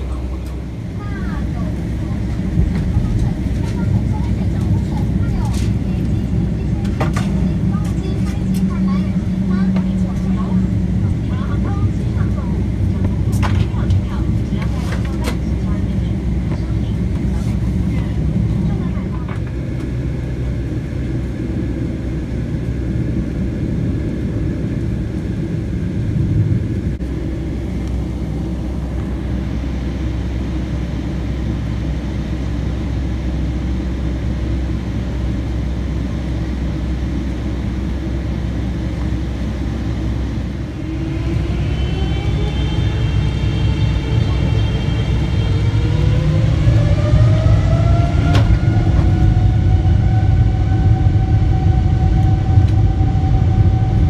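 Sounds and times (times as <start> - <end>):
jet engine whine: 0.0 - 54.0
jet engines rumbling: 0.0 - 54.0.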